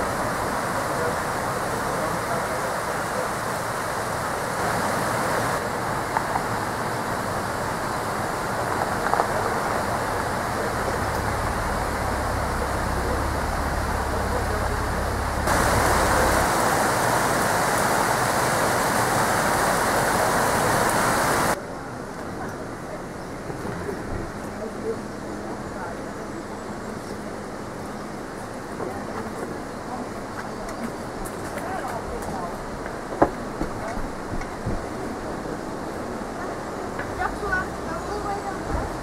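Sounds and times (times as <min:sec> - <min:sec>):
river water rushing: 0:00.0 - 0:22.9
low rumble: 0:10.6 - 0:16.5.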